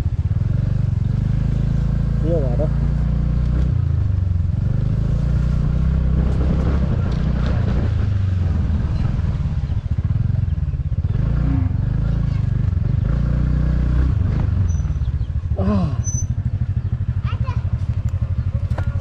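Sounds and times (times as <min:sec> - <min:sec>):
motor scooter engine running: 0:14.2 - 0:19.0.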